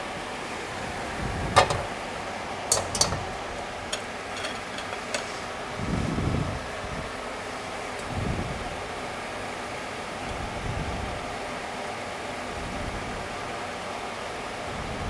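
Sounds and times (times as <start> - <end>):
steady background hiss: 0.0 - 15.0
spatula clinking against frying pan: 2.7 - 3.3.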